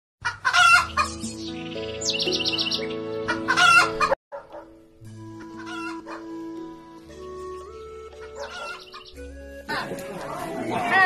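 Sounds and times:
background music: 0:00.5 - 0:11.0
rooster crowing: 0:08.2 - 0:09.0.

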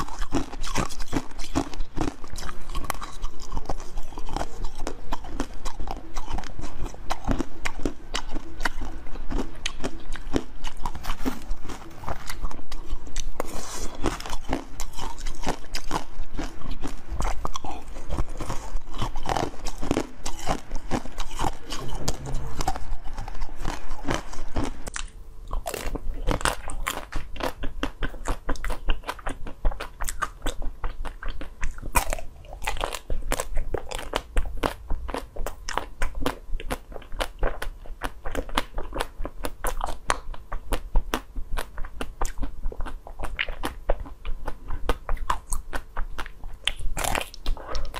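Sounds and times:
chewing ice: 0:00.0 - 0:47.9.

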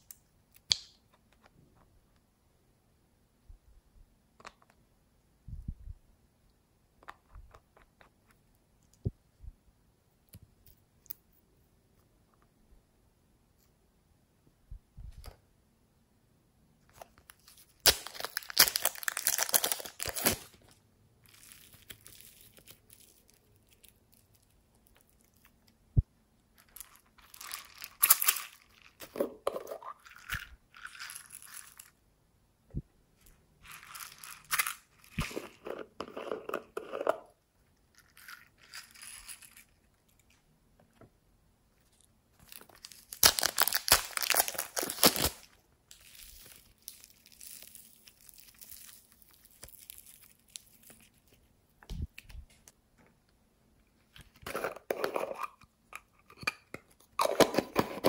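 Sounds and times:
plastic packaging crinkling: 0:17.3 - 0:20.7, 0:42.4 - 0:51.5.

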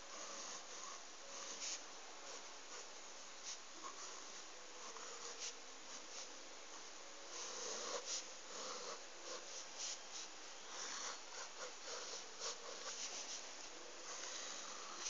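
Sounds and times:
marker scratching on paper: 0:00.2 - 0:06.3, 0:07.3 - 0:13.5.

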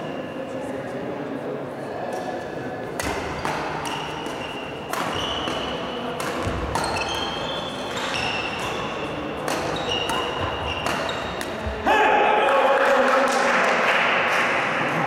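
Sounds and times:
racket hitting shuttlecock: 0:02.1 - 0:11.8.

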